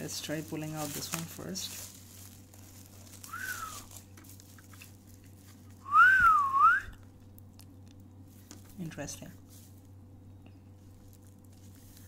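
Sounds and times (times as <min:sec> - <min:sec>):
person whistling: 0:03.3 - 0:03.9, 0:05.8 - 0:07.0.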